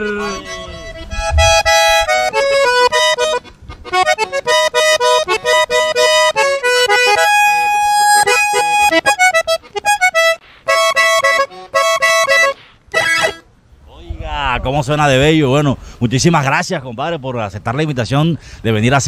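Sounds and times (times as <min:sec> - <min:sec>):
button accordion playing: 0:00.0 - 0:13.4.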